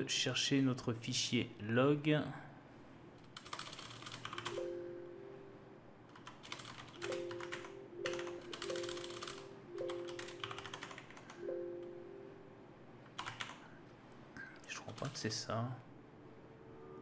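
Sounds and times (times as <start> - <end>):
typing on computer keyboard: 3.3 - 4.6, 6.1 - 11.4, 13.1 - 13.6.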